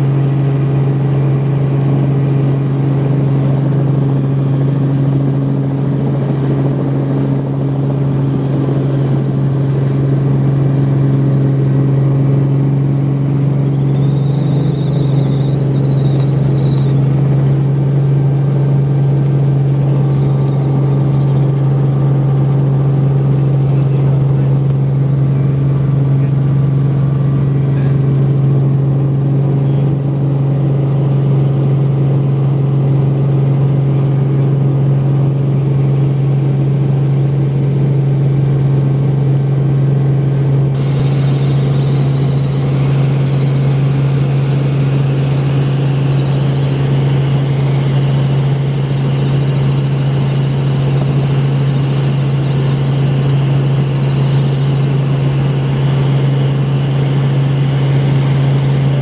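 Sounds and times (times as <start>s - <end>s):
helicopter rotor and engine drone: 0.0s - 59.0s
faint high whine: 8.2s - 30.1s, 40.7s - 59.0s.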